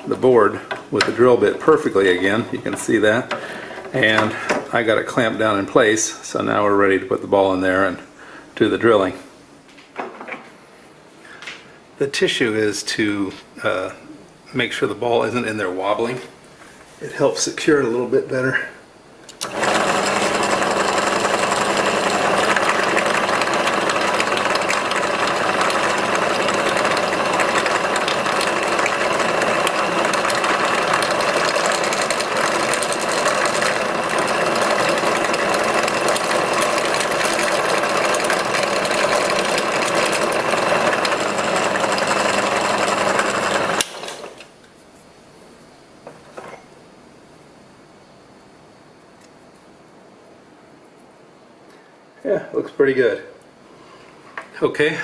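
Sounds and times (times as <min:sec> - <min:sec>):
drill press motor running: 0:00.0 - 0:04.8, 0:19.3 - 0:44.5
drill bit drilling through wood: 0:19.4 - 0:44.4.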